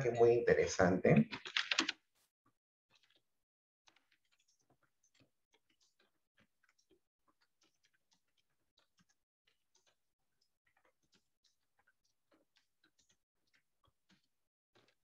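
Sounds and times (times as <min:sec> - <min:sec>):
computer keyboard typing: 0:01.2 - 0:02.0.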